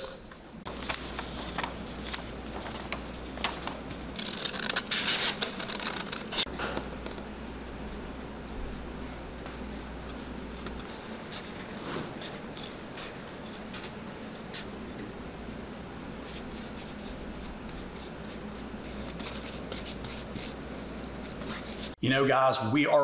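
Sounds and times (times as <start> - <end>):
steady low hum: 0.0 - 22.0
marker scratching on paper: 10.1 - 14.7, 16.2 - 22.0.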